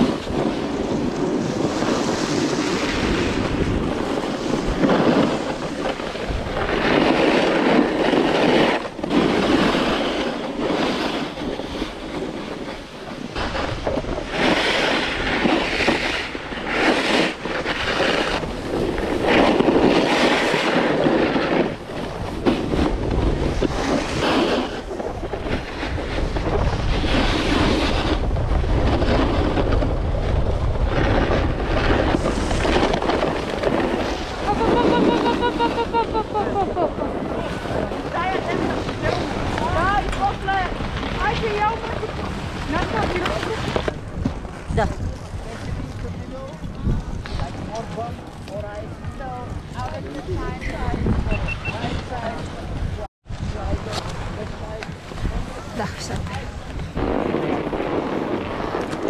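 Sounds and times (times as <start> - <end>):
ski edges scraping snow: 0.0 - 48.5
wind noise on microphone: 0.0 - 59.0.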